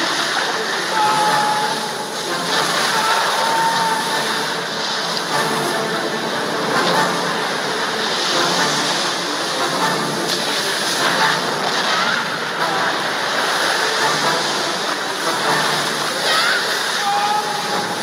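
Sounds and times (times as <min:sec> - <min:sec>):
rushing floodwater roar: 0:00.0 - 0:18.0.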